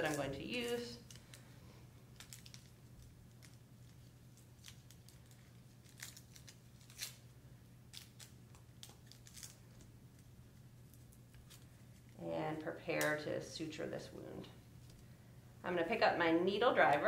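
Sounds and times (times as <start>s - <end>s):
packet crinkling and tearing: 2.1s - 7.3s, 7.9s - 12.2s.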